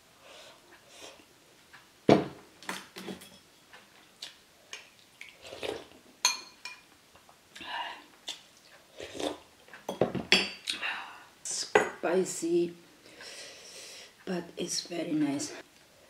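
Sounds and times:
eating and sipping sounds: 3.8s - 6.1s, 7.5s - 9.9s
spoon clinking on ceramic bowls: 6.2s - 6.8s.

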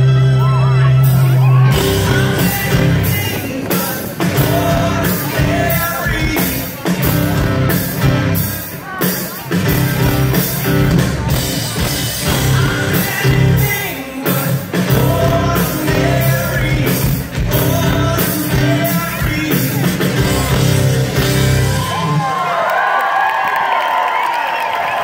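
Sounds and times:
live rock band playing: 0.0s - 22.6s
man singing: 1.6s - 7.8s, 12.1s - 20.8s.

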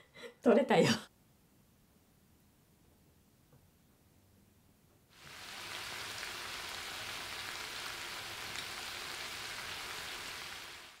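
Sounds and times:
steady hiss: 5.1s - 11.0s.

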